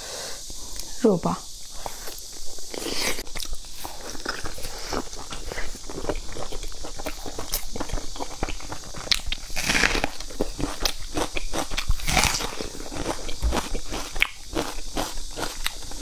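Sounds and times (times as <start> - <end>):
wet chewing: 1.6 - 16.0
crunching bites into onion: 7.0 - 16.0.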